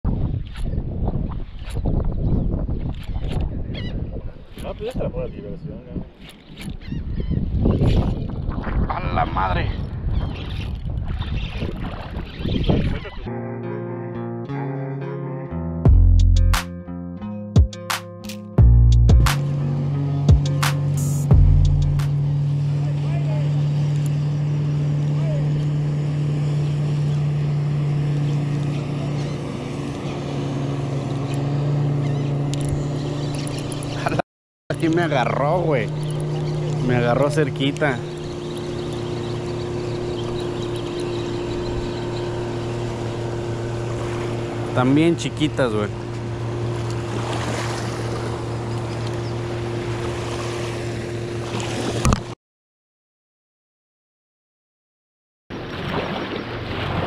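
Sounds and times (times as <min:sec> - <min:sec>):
wind on microphone: 0:00.0 - 0:13.3
outboard motor humming: 0:00.1 - 0:16.6, 0:18.6 - 0:52.4, 0:55.5 - 0:57.0
small waves lapping: 0:10.4 - 0:13.2, 0:22.1 - 0:52.1, 0:55.5 - 0:57.0
engine running steadily: 0:18.6 - 0:52.3.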